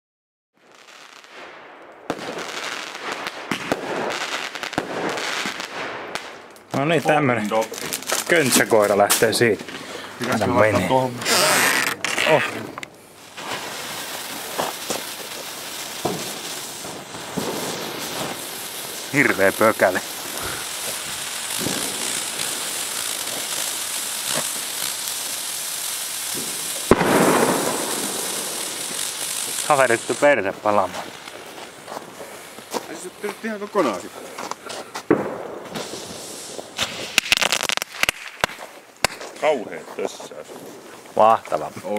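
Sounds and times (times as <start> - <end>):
fireworks bangs: 0.6 - 41.6
fireworks crackling: 0.6 - 41.9
fireworks hissing: 0.6 - 41.9
sharp pop: 26.4 - 28.2, 36.8 - 39.3.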